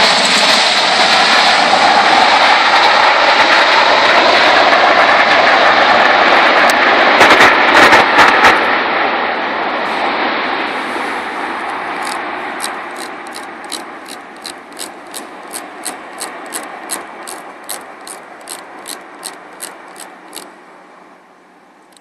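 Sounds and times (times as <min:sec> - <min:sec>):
jet engine roar: 0:00.0 - 0:21.1
sharp high clicks: 0:12.0 - 0:20.5.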